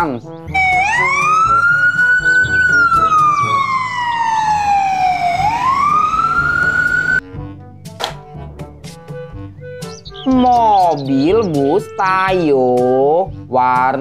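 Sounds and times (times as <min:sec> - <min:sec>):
background music: 0:00.0 - 0:14.0
ambulance siren wailing: 0:00.5 - 0:07.2.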